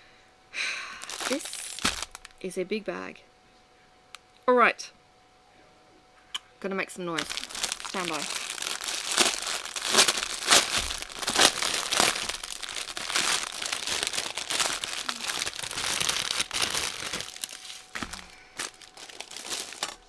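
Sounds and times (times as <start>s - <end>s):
plastic bag crackling: 1.0s - 2.4s, 7.2s - 20.0s.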